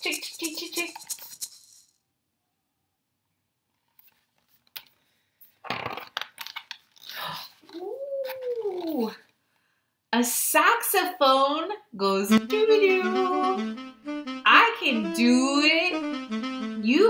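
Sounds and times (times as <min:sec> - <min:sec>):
paper pages rustling and flapping: 0:03.7 - 0:09.0.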